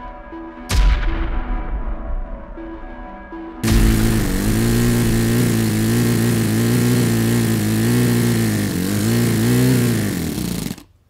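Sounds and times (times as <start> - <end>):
model engine running: 3.6 - 10.9.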